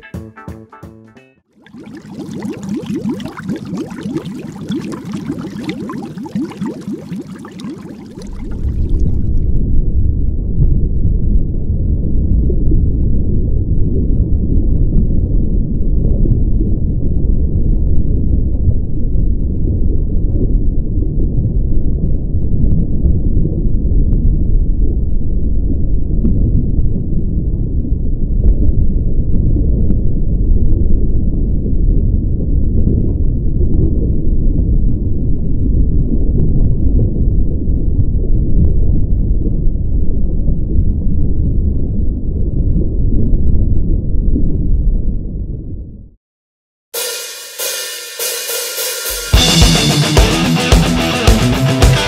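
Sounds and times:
water rushing underwater: 1.6s - 9.8s.

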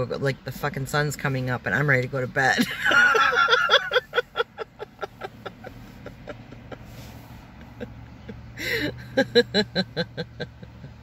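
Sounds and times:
woman laughing: 2.5s - 11.0s.

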